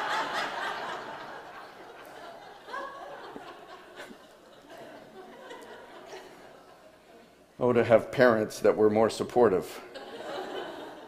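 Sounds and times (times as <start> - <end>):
crowd laughing: 0.0 - 7.3, 9.8 - 11.0.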